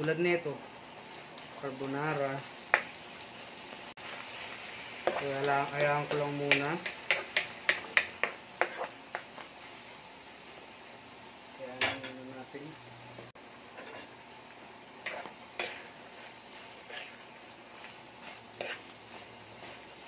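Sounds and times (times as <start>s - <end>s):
faint sizzle: 0.0s - 20.0s
spatula clacking against frying pan: 6.5s - 9.3s.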